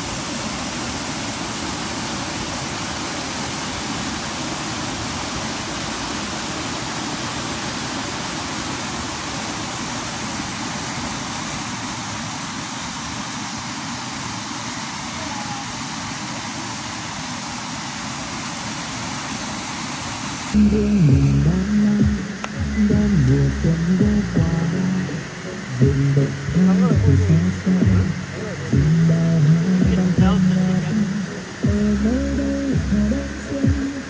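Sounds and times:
small waterfall rushing: 0:00.0 - 0:34.0
music: 0:20.6 - 0:34.0.

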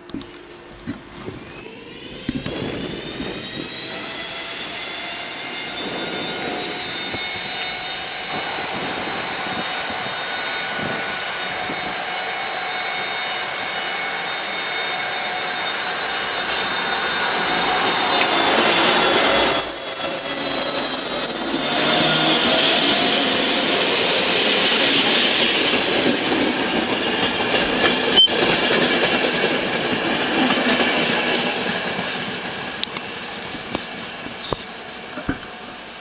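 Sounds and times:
train wheels rumbling: 0:00.0 - 0:36.0
high wheel squeal: 0:01.4 - 0:28.6.

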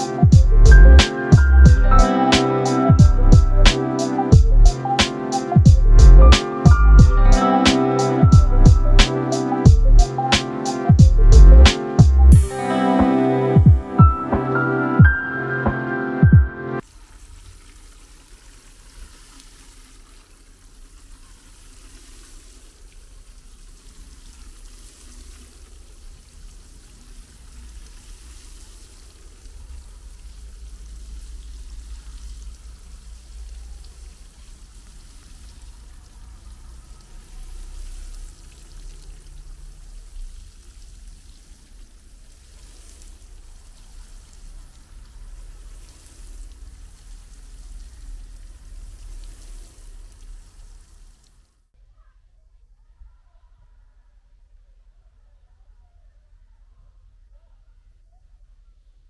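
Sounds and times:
water spray hissing on soil: 0:00.0 - 0:05.6, 0:06.4 - 0:11.0, 0:11.7 - 0:13.6, 0:16.8 - 0:51.5
low rumble: 0:00.3 - 0:02.0, 0:03.0 - 0:03.7, 0:04.3 - 0:04.7, 0:05.7 - 0:07.4, 0:08.4 - 0:09.0, 0:11.0 - 0:12.4.

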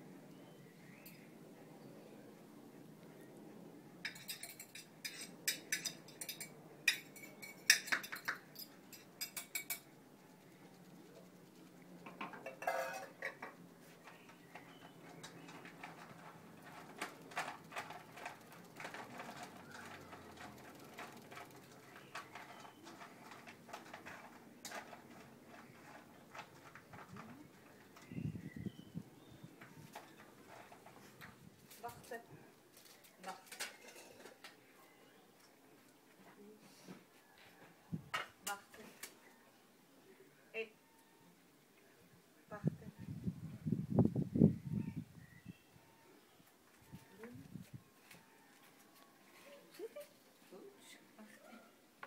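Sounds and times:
dry dog food clinking in metal bowls: 0:04.1 - 0:09.9, 0:12.1 - 0:28.1.

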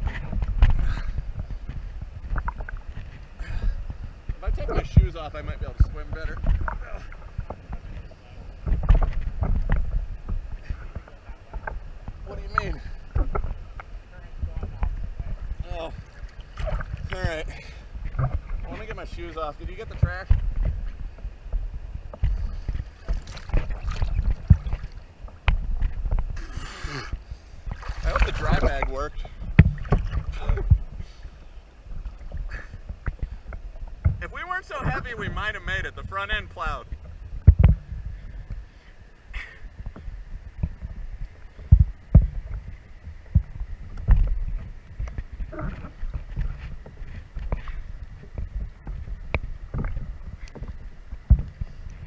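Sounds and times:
low knocks and thumps: 0:00.0 - 0:26.4, 0:27.1 - 0:38.6, 0:39.7 - 0:52.0
water sloshing against canoe: 0:00.0 - 0:26.4, 0:27.1 - 0:35.6
river water sloshing and splashing: 0:16.0 - 0:18.7, 0:22.2 - 0:25.8, 0:27.4 - 0:34.0.

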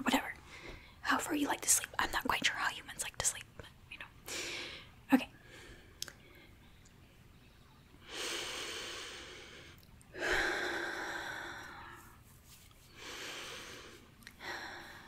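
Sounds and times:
woman breathing deeply: 0:08.0 - 0:12.2, 0:12.9 - 0:15.0.

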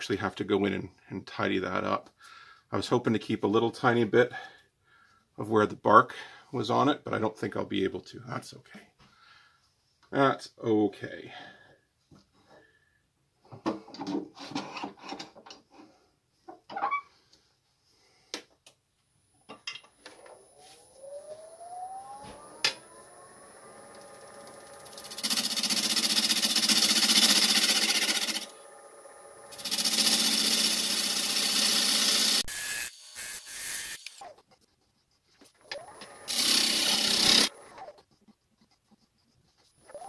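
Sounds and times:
lathe motor whining and humming: 0:20.4 - 0:32.5, 0:35.6 - 0:38.0
gouge scraping wooden bowl: 0:34.3 - 0:35.6, 0:36.3 - 0:40.0.

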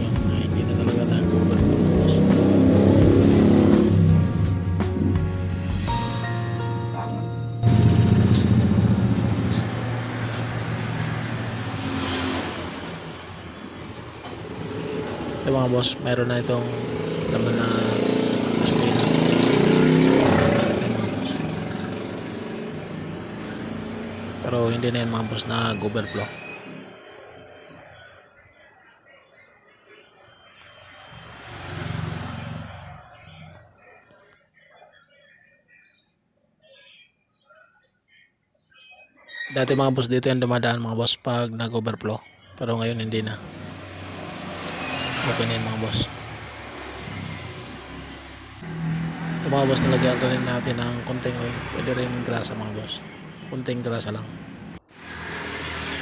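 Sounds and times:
vehicle passing by: 0:00.0 - 0:05.8, 0:07.1 - 0:28.0, 0:30.8 - 0:33.7, 0:43.0 - 0:53.4, 0:54.0 - 0:56.0
faint birds chirping: 0:06.2 - 0:48.6, 0:50.0 - 0:54.5
vehicle engine running: 0:07.1 - 0:25.0.

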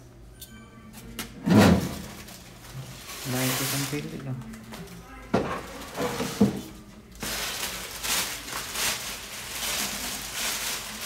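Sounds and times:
plastic bag crinkling: 0:01.9 - 0:05.0, 0:05.6 - 0:06.5, 0:07.1 - 0:11.0.

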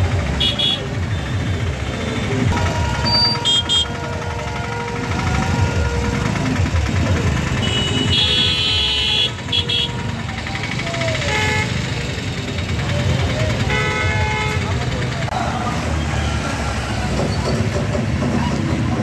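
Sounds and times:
motorcycle and car engines: 0:00.0 - 0:19.0
vehicle horns honking: 0:00.3 - 0:10.3, 0:11.2 - 0:12.2, 0:13.6 - 0:14.9.

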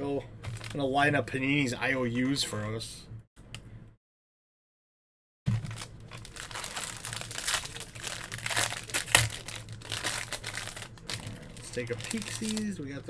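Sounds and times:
foil wrapper crinkling: 0:05.5 - 0:12.8.

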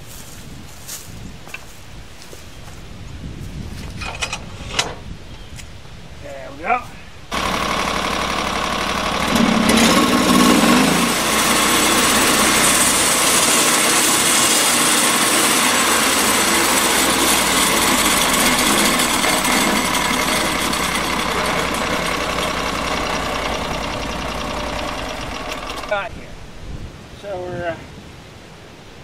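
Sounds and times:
band sawmill sawing log: 0:07.3 - 0:26.3.

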